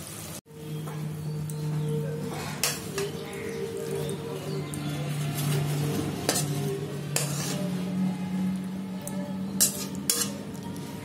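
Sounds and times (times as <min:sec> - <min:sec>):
metal spoon scraping metal pan: 0:02.4 - 0:03.3, 0:05.4 - 0:08.0, 0:09.5 - 0:10.6.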